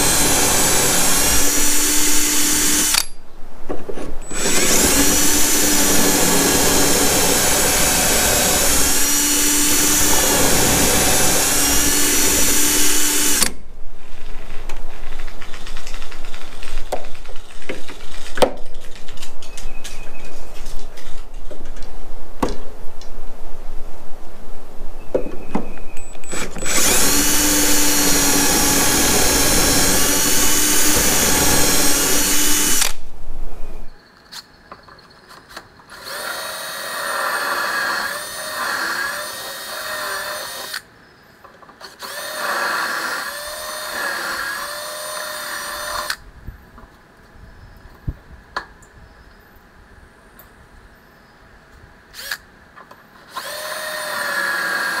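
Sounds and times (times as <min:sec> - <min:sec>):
cordless drill boring wood: 0:00.0 - 0:03.1, 0:04.2 - 0:13.6, 0:26.3 - 0:33.0, 0:35.9 - 0:40.8, 0:41.8 - 0:46.2, 0:52.2 - 0:52.4, 0:53.3 - 0:55.0.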